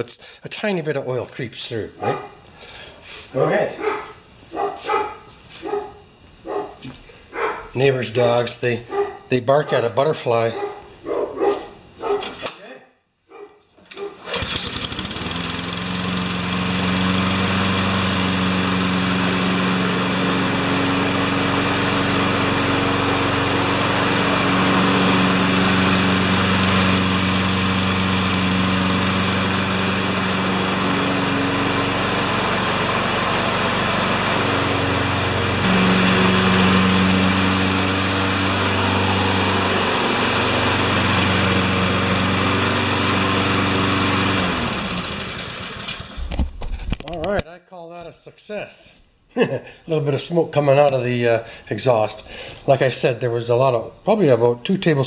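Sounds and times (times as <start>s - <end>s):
lawn mower engine running: 13.9s - 46.4s.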